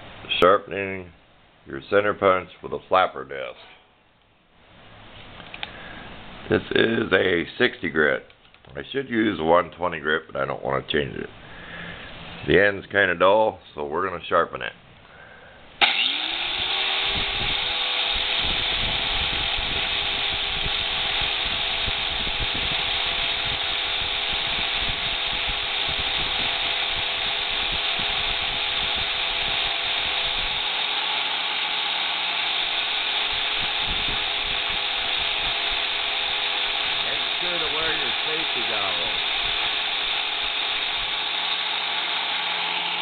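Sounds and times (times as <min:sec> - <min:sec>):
angle grinder running: 0:15.8 - 0:43.0
steel grinding against disc: 0:15.8 - 0:43.0.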